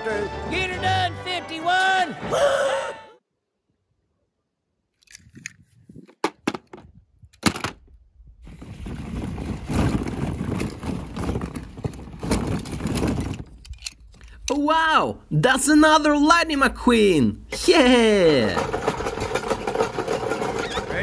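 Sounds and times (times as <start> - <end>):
plastic balls clattering: 8.5 - 14.3, 18.2 - 21.0.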